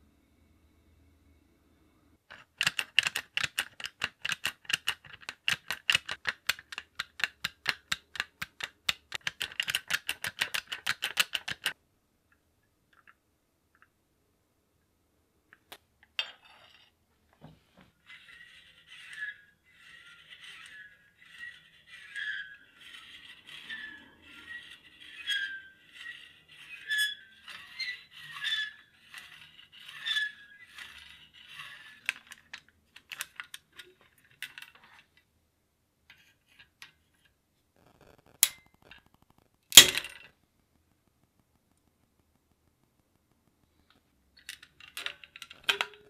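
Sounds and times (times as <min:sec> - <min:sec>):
scraping on metal parts: 0:18.0 - 0:35.2.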